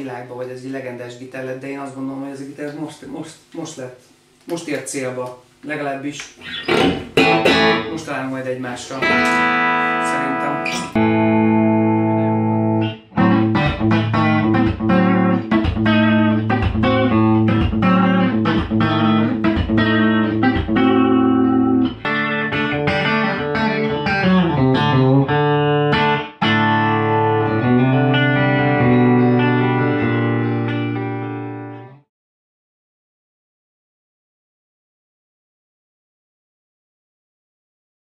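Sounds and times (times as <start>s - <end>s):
electric guitar through an amp: 6.4s - 8.1s, 8.9s - 32.0s.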